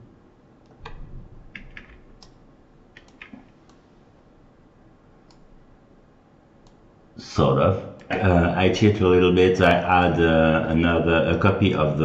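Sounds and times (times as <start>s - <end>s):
computer keyboard and mouse clicks: 0.6s - 3.8s, 5.2s - 5.5s.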